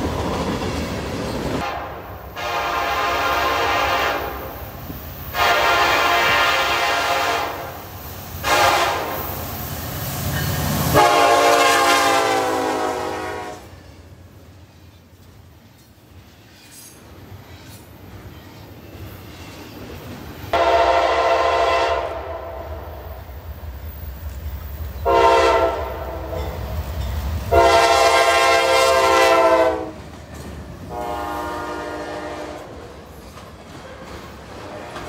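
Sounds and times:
low rumble of train: 0.0s - 35.0s
train air horn blasts: 1.6s - 4.6s, 5.3s - 9.4s, 10.8s - 13.9s, 20.5s - 23.1s, 25.0s - 26.6s, 27.5s - 30.0s, 30.9s - 32.8s, 34.6s - 35.0s.

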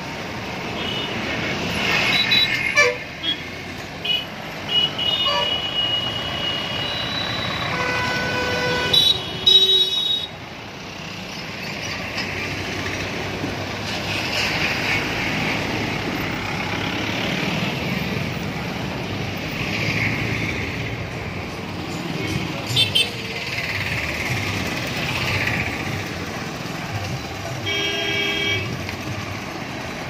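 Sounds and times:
vehicles driving past: 0.0s - 30.0s
vehicle horns honking: 2.2s - 3.4s, 4.0s - 10.4s, 27.6s - 28.8s.

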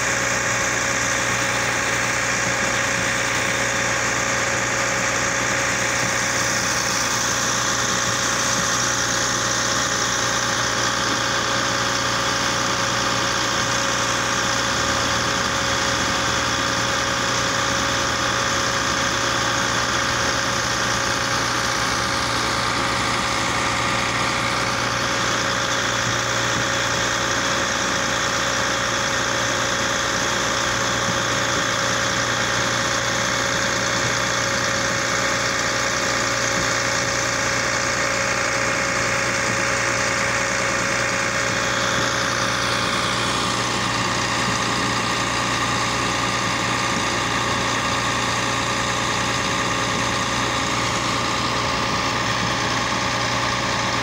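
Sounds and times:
baler engine droning: 0.0s - 54.0s.

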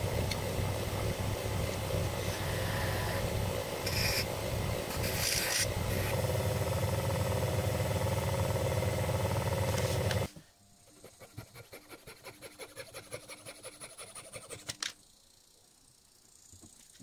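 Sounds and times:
lathe motor hum: 5.7s - 10.3s.

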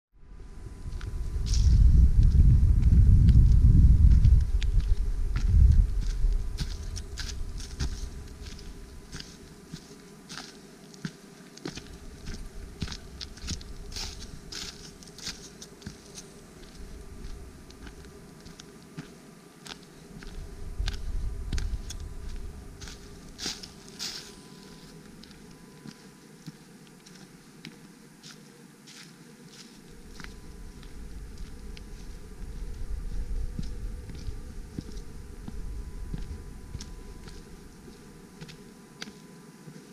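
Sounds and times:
wind rumble on microphone: 0.2s - 9.2s, 12.0s - 15.3s, 16.6s - 18.2s, 20.1s - 23.8s, 29.9s - 38.6s
footsteps on dry leaves: 0.8s - 39.9s.

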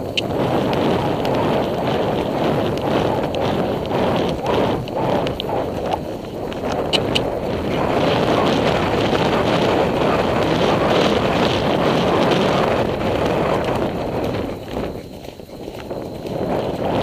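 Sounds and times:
sharp clicks: 0.0s - 7.3s
wind buffeting microphone: 0.0s - 17.0s.

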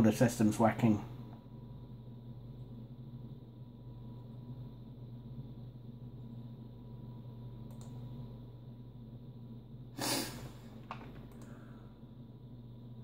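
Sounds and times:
desktop computer humming: 0.0s - 13.0s
mouse click: 7.7s - 8.0s.

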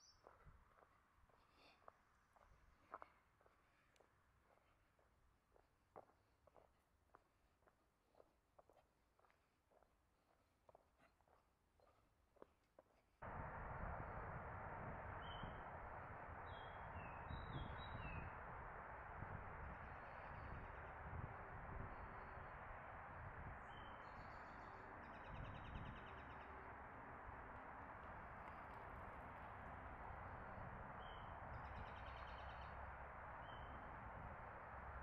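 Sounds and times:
songbirds chirping: 13.2s - 35.0s
steady low background hiss: 13.2s - 35.0s.

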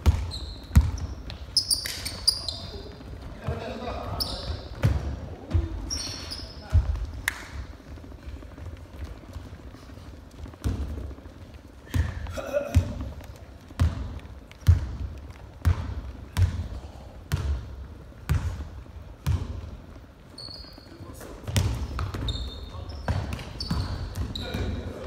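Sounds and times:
basketball dribbling on wooden floor: 0.0s - 1.6s, 2.5s - 6.0s, 10.3s - 20.0s, 21.4s - 25.0s.

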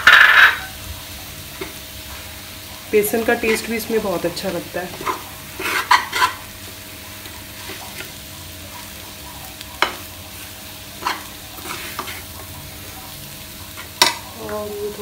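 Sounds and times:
metal spoon scraping a pan: 0.0s - 0.8s, 3.4s - 3.8s, 4.9s - 6.5s, 10.9s - 12.4s
frying hiss: 0.0s - 15.0s.

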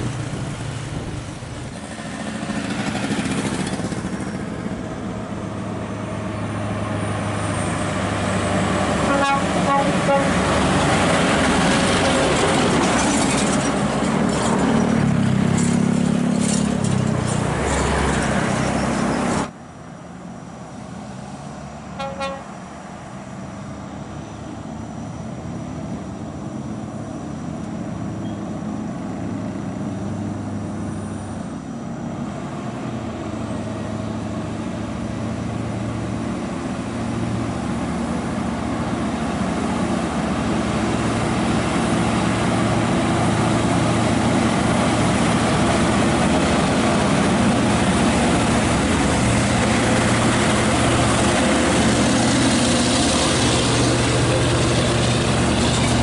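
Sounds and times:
truck engine under load: 0.0s - 56.0s
truck horn toot: 9.0s - 10.5s, 22.0s - 22.6s.

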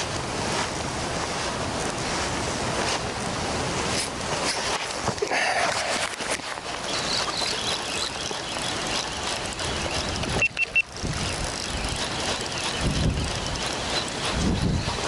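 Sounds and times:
wind and waves at shore: 0.0s - 15.0s
wind rumble on microphone: 9.5s - 15.0s.

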